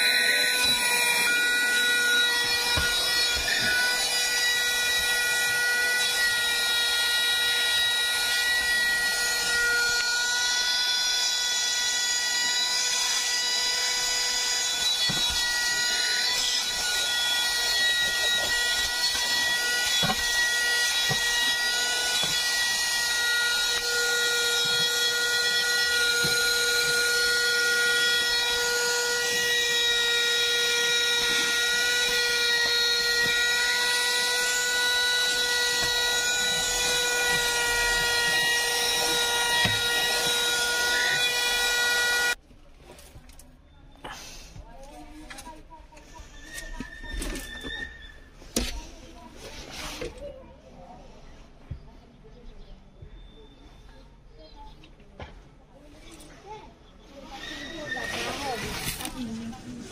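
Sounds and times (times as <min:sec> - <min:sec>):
handheld vacuum cleaner running: 0:00.0 - 0:42.4, 0:57.8 - 0:59.9.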